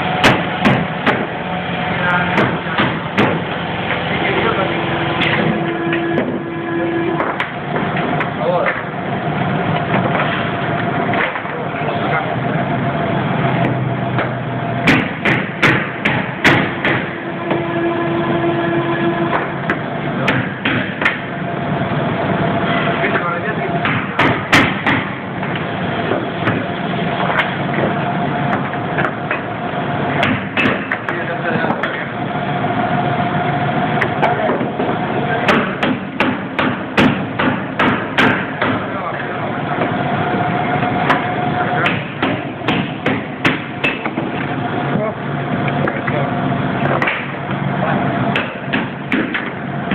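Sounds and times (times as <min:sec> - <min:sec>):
steady workshop hum: 0:00.0 - 0:49.9
hammer striking chisel: 0:00.2 - 0:01.3, 0:14.2 - 0:17.6, 0:23.8 - 0:25.1, 0:30.2 - 0:32.0, 0:35.5 - 0:38.9, 0:41.8 - 0:44.2, 0:48.3 - 0:49.9.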